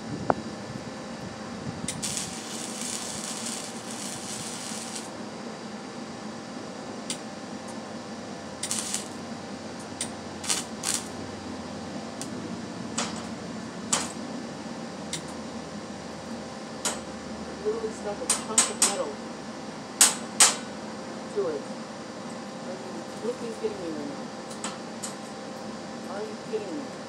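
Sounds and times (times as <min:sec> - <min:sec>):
faint steady hum: 0:00.0 - 0:27.0
welding arc crackling: 0:01.8 - 0:05.2, 0:08.5 - 0:14.2.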